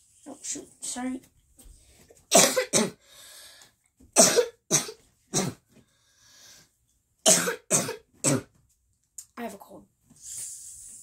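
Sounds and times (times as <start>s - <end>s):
boy coughing: 2.3s - 3.0s, 4.2s - 5.6s, 7.3s - 8.5s.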